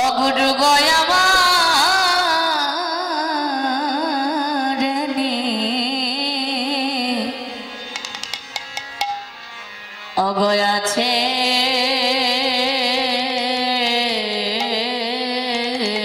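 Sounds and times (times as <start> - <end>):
woman singing into a microphone: 0.0 - 7.8, 10.2 - 16.0
sharp percussion strikes: 7.9 - 9.4, 14.6 - 15.1.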